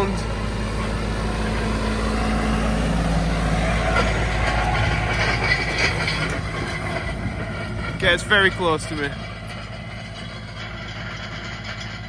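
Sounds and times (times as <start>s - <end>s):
rollers rumbling and rattling: 0.0s - 12.0s
tractor engine running: 0.0s - 12.0s.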